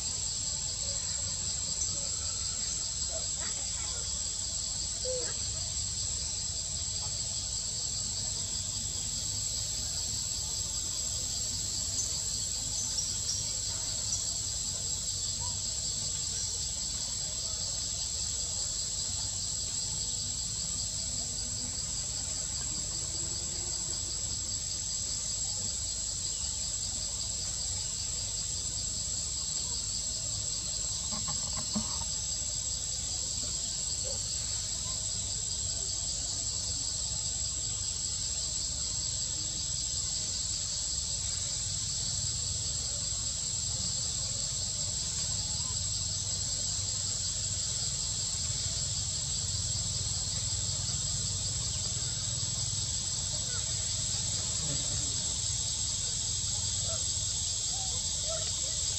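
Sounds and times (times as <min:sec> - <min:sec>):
insects pulsing buzz: 0:00.0 - 0:58.9.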